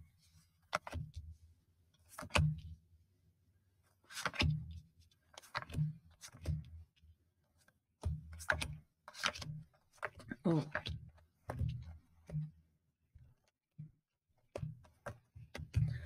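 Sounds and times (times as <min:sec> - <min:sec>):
cards slapping and rustling: 0:00.4 - 0:01.2, 0:02.0 - 0:02.6, 0:04.0 - 0:06.7, 0:07.6 - 0:12.4.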